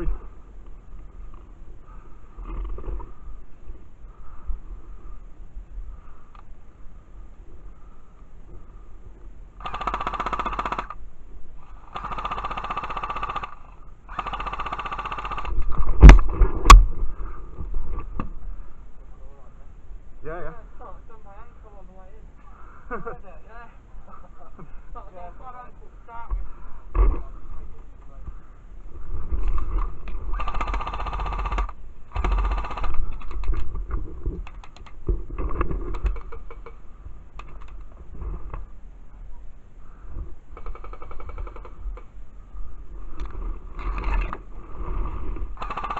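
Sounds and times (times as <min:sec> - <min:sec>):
airsoft gun firing bursts: 0:09.6 - 0:11.0, 0:11.9 - 0:15.6, 0:30.3 - 0:33.2, 0:40.6 - 0:41.8, 0:45.6 - 0:45.9
loud thumps: 0:15.7 - 0:17.1.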